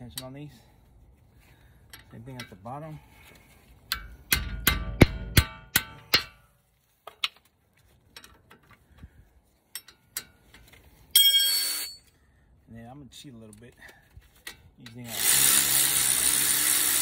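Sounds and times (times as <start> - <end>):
hammer striking wrench: 3.9 - 6.4
wrench clinking: 9.7 - 12.1.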